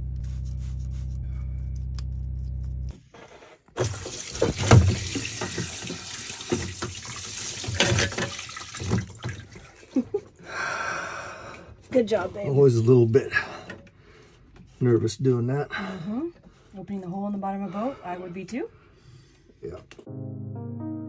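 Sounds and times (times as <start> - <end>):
steady low hum: 0.0 - 3.1
seawater gushing and splashing: 3.8 - 10.2.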